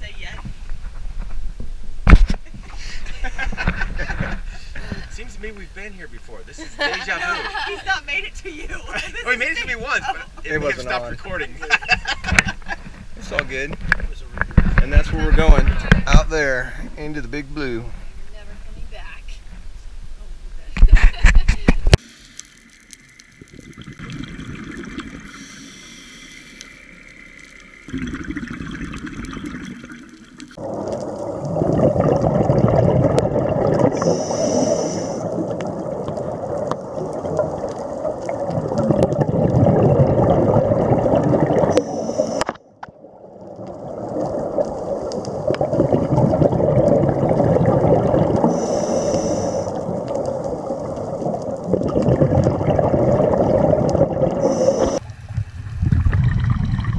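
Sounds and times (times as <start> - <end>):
scuba exhaust bubbles gurgling: 23.1 - 56.9.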